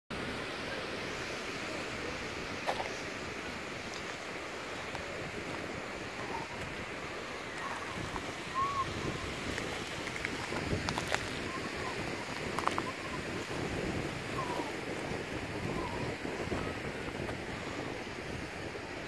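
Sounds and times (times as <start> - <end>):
surf washing on shore: 0.1 - 19.0
wind buffeting microphone: 0.2 - 19.0
footsteps crunching on rock: 2.6 - 3.0, 9.4 - 11.5.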